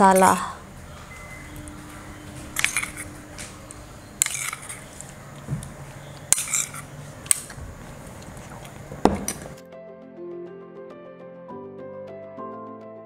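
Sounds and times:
metal spoon scraping metal pot: 0:02.6 - 0:03.2, 0:04.2 - 0:05.0, 0:06.3 - 0:06.9.

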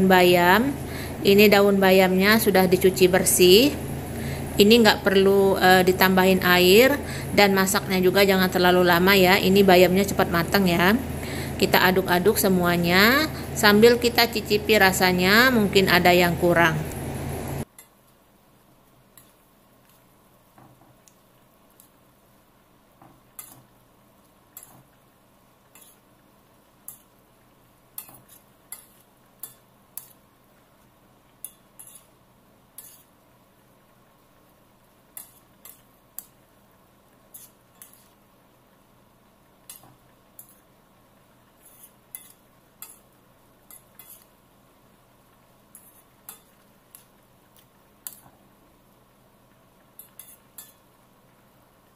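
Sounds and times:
metal spoon scraping frying pan: 0:25.7 - 0:26.0, 0:31.4 - 0:32.2, 0:32.8 - 0:33.1, 0:37.3 - 0:38.2, 0:41.6 - 0:43.0, 0:43.7 - 0:44.3, 0:45.7 - 0:46.6, 0:50.0 - 0:50.8.

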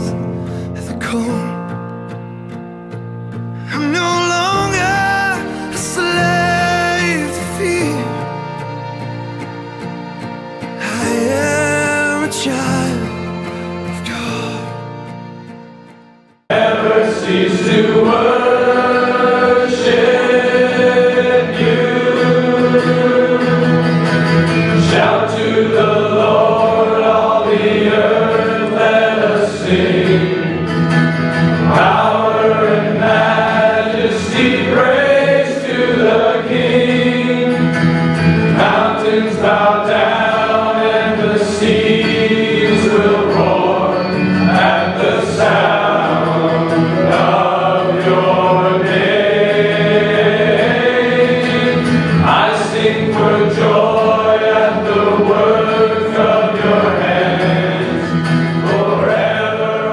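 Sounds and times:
guitar: 0:00.0 - 0:59.9
group of voices singing: 0:10.8 - 0:13.4, 0:16.5 - 0:30.9, 0:31.5 - 0:59.9.

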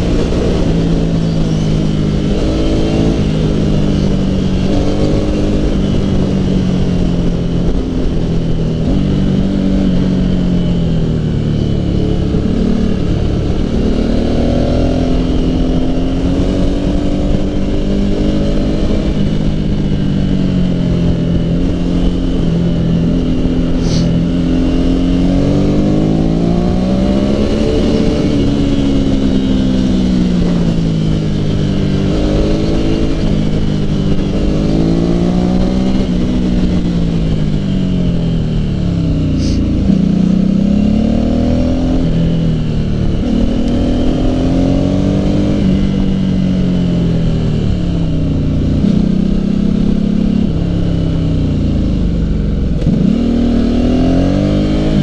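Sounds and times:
motorcycle engine accelerating: 0:00.0 - 0:55.0
wind rushing: 0:23.7 - 0:42.6.

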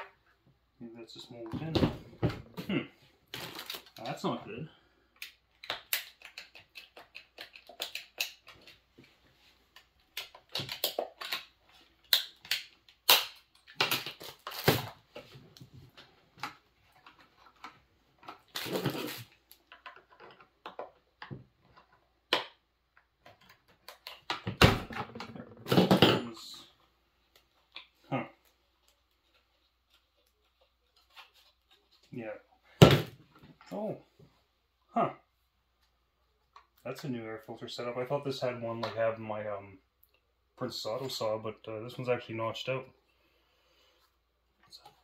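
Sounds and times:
plastic cover scraping: 0:18.4 - 0:19.4.

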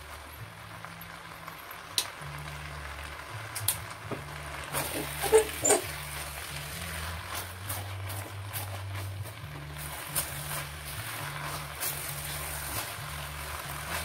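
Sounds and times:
spatula scraping wok: 0:04.5 - 0:14.0
sharp squeaks and clicks: 0:04.8 - 0:06.0.

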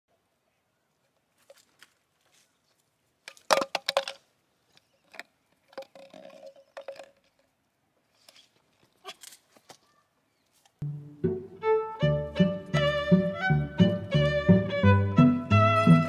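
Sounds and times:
plastic jar knocking on concrete: 0:03.3 - 0:04.2.

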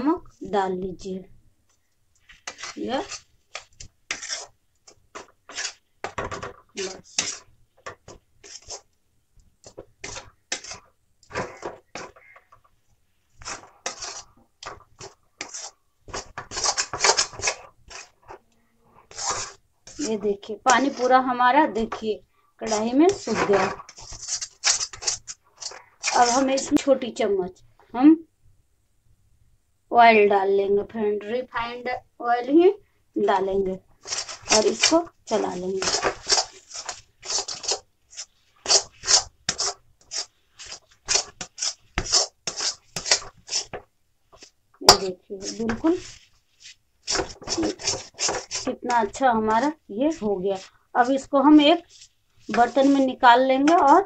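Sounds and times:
metal spatula scraping pan: 0:02.3 - 0:08.9, 0:09.7 - 0:12.6, 0:13.3 - 0:26.8, 0:34.0 - 0:43.8, 0:44.4 - 0:46.2, 0:47.0 - 0:54.0.

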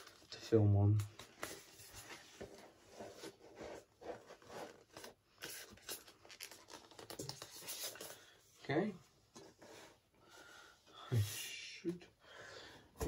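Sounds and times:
objects rustling and scraping: 0:01.1 - 0:10.2.

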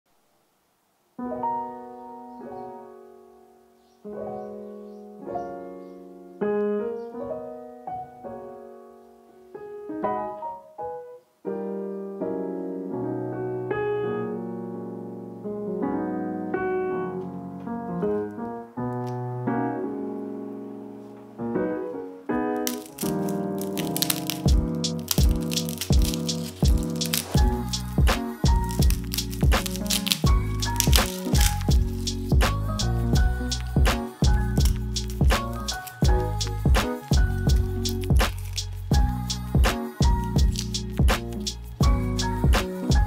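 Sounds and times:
piano music: 0:01.2 - 0:43.0.

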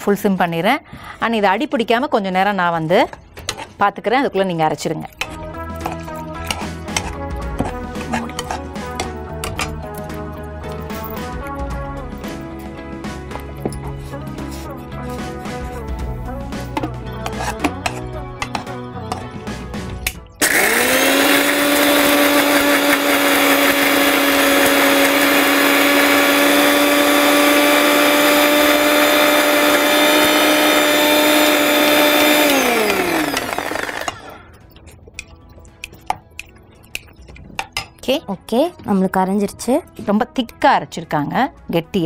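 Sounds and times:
electric mixer grinder whining: 0:20.4 - 0:34.5.

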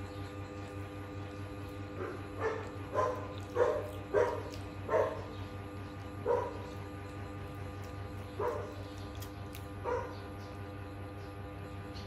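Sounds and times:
dog barking: 0:02.0 - 0:05.4, 0:06.2 - 0:06.8, 0:08.4 - 0:08.9, 0:09.8 - 0:10.3.

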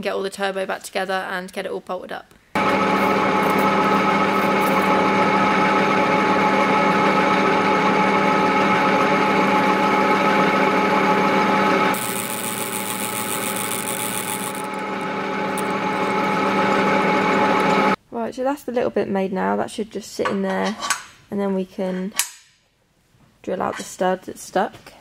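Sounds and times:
metal lathe whining: 0:02.6 - 0:18.0.

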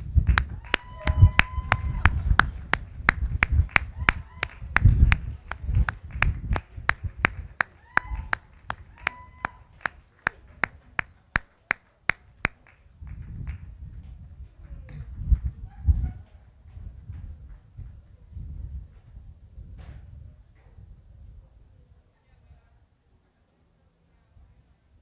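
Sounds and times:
rhythmic clapping: 0:00.0 - 0:13.6.

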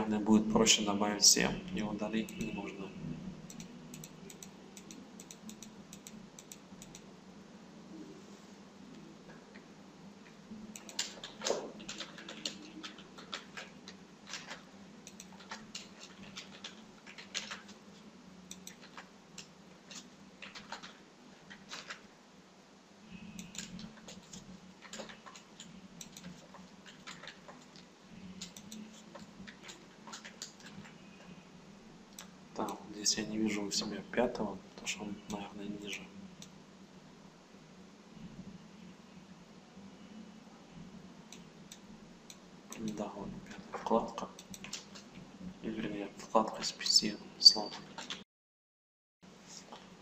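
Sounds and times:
faint steady hum: 0:00.0 - 0:48.2
keyboard and mouse clicking: 0:02.3 - 0:02.6, 0:03.5 - 0:07.1, 0:10.7 - 0:22.0, 0:23.4 - 0:31.4, 0:41.3 - 0:45.1, 0:47.5 - 0:48.2.

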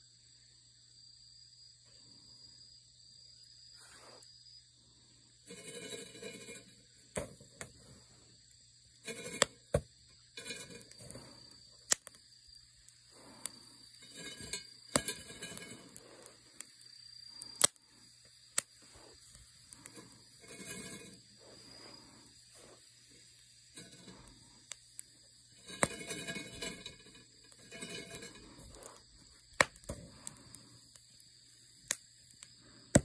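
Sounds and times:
insects chirring: 0:00.0 - 0:33.0
rustling and crackling: 0:05.5 - 0:08.2, 0:09.0 - 0:31.2
chestnuts popping and cracking: 0:11.8 - 0:12.3, 0:14.8 - 0:17.9, 0:28.7 - 0:31.0, 0:31.8 - 0:33.0.

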